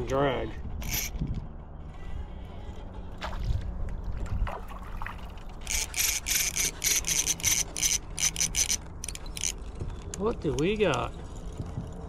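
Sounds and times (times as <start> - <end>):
fishing reel whirring: 0.8 - 1.2, 5.4 - 9.7.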